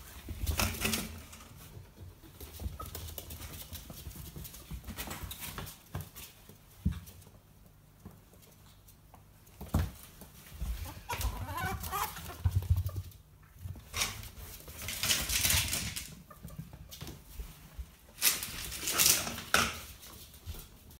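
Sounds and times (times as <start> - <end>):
claws scrabbling on tiles: 0.3 - 20.9
ferrets clucking chatter: 10.8 - 12.5.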